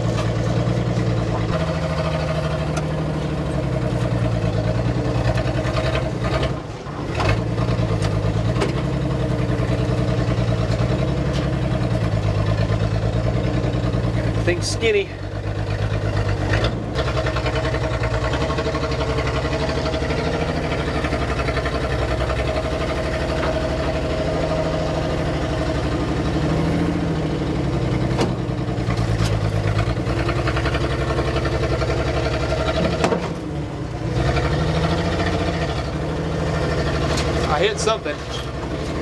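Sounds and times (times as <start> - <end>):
diesel engine clattering: 0.0 - 39.0
truck knocking on trail: 15.3 - 26.8, 27.7 - 33.5.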